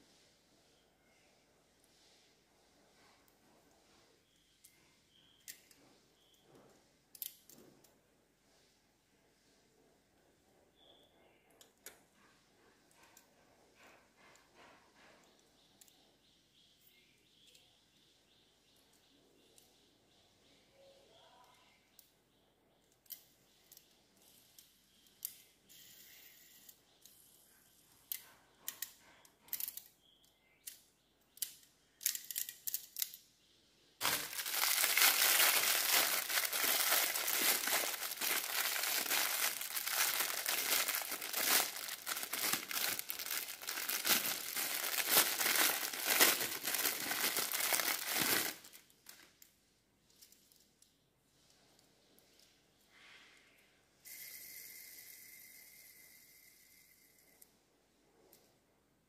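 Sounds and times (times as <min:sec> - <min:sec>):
plastic packaging crinkling: 0:34.0 - 0:49.2.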